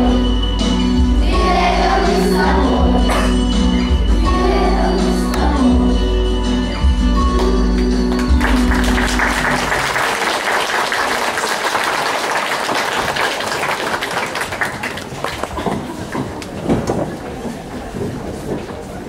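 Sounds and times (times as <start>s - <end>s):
song backing music: 0.0s - 10.4s
audience applause: 8.1s - 16.6s.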